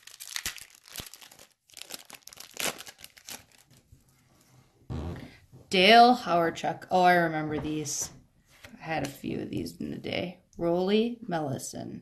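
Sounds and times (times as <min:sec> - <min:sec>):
card pack wrapper tearing: 0:00.0 - 0:03.8.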